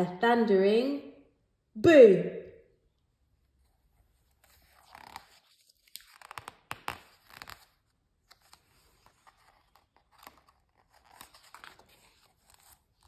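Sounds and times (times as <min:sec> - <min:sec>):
book pages crackling: 0:03.6 - 0:13.0
page turning rustle: 0:03.7 - 0:13.0.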